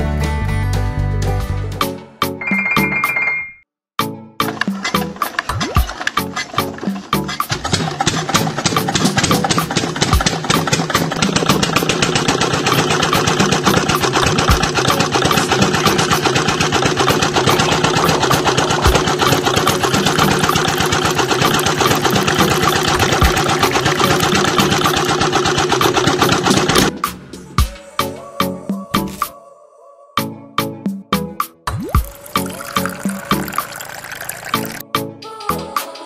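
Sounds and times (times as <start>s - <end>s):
small engine idling: 7.5s - 26.9s.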